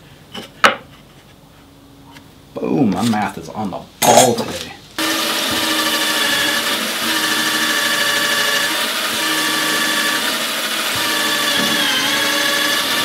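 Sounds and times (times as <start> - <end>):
cordless drill whining: 5.0 - 13.0.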